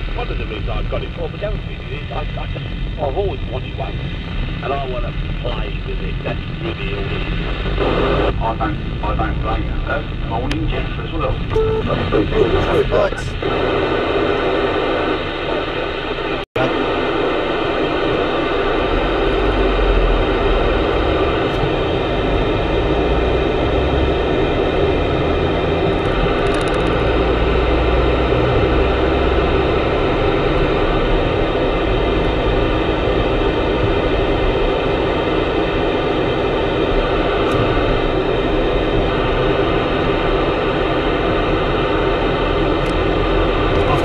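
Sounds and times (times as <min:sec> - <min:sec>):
car engine and road rumble: 0:00.0 - 0:14.7, 0:16.6 - 0:44.0
radio static hiss: 0:00.0 - 0:44.0.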